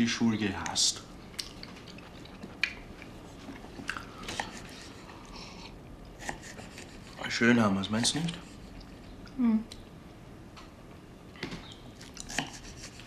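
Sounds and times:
chewing: 0.6 - 5.4.

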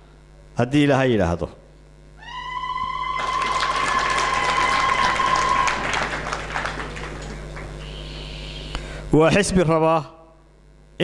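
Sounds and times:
long high-pitched call: 2.2 - 6.8, 7.8 - 8.8
audience clapping: 3.0 - 8.3.

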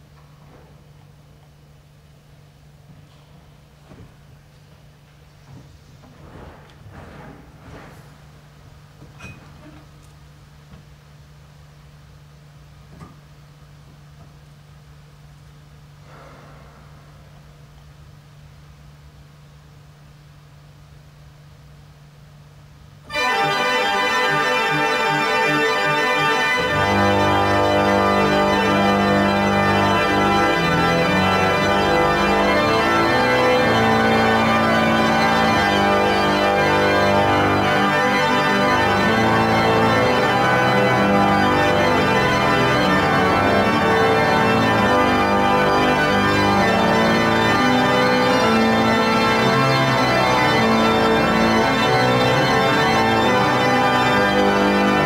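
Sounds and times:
pipe organ chords: 23.1 - 55.0.

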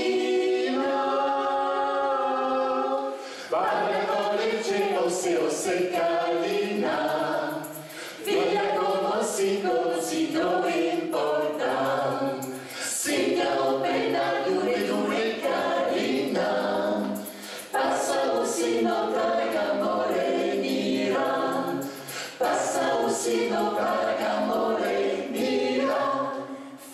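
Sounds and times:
mixed choir singing in harmony: 0.0 - 26.9.

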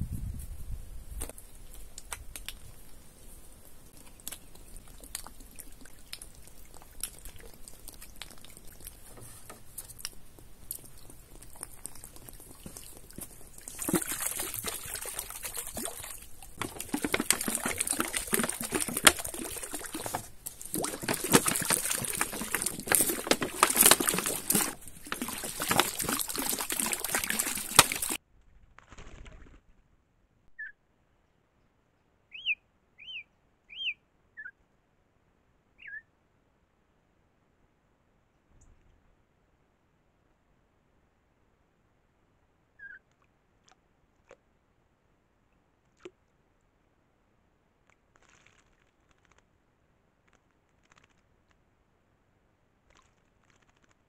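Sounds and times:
water pouring and splashing: 3.6 - 28.2.

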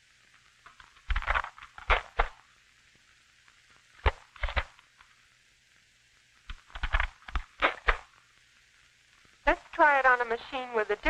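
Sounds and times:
typewriter mechanical clicks: 6.5 - 8.0.

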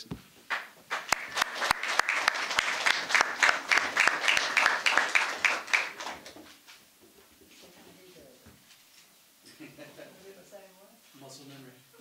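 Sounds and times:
audience applause: 0.5 - 6.5.

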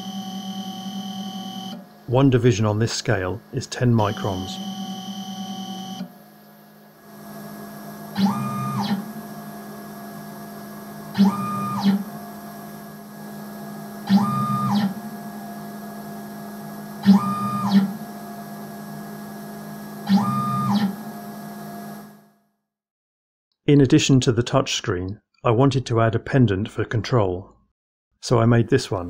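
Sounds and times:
steady hum: 1.9 - 5.0
stepper motor whining: 7.0 - 22.1.

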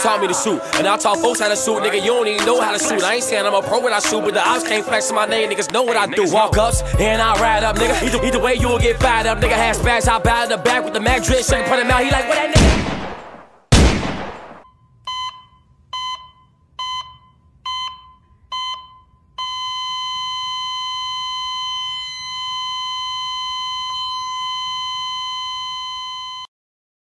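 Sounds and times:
heart monitor beeps: 14.6 - 26.5
heart monitor flatline tone: 14.6 - 26.5.

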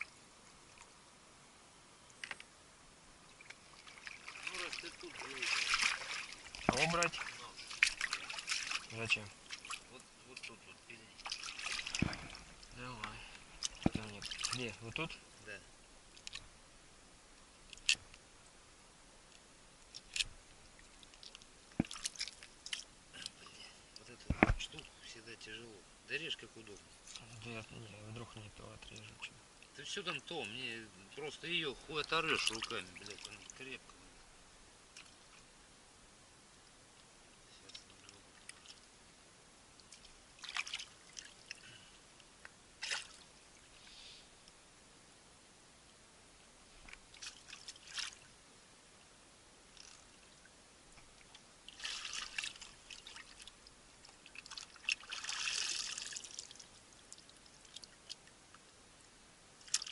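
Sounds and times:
water splashing and dripping: 3.3 - 15.2, 19.9 - 23.4, 31.9 - 33.7, 39.8 - 41.6, 42.8 - 43.4, 46.9 - 48.3, 49.7 - 50.2, 51.0 - 58.4, 59.6 - 59.9.

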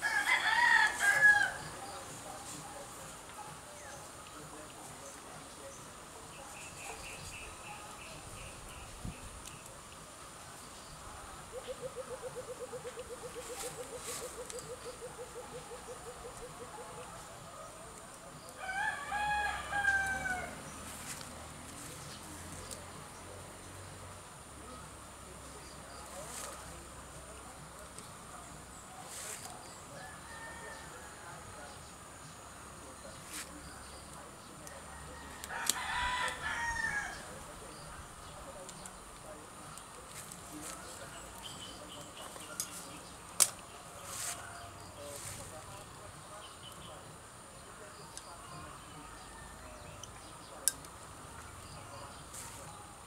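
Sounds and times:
rooster crowing: 0.0 - 1.7, 18.6 - 20.6, 30.0 - 31.5, 34.9 - 37.3
pruning shears clicking: 42.2 - 43.7, 50.0 - 51.1.

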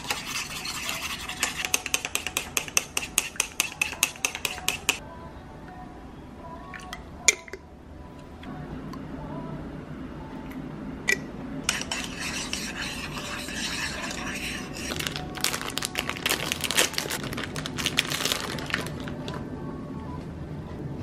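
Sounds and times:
utensil scraping and clinking bowl: 0.0 - 5.0, 11.7 - 15.2.

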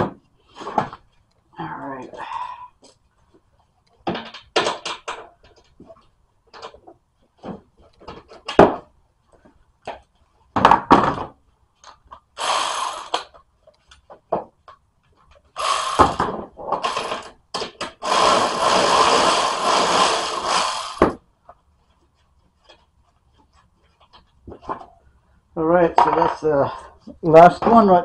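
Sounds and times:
power tool spinning nuts: 12.4 - 13.3, 15.6 - 17.3, 17.9 - 21.2.

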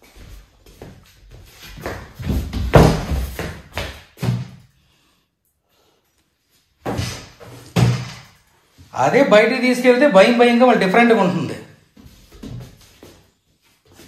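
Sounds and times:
panther paws thudding on floor: 1.8 - 4.6.

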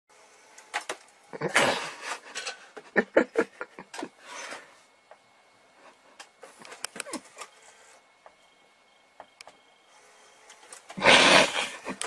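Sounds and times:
loud noisy burst: 11.0 - 12.0.

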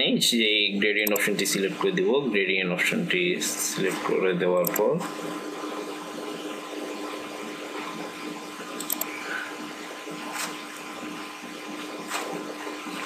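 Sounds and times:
low electrical hum: 0.0 - 13.0
mouse clicks: 8.8 - 9.1.

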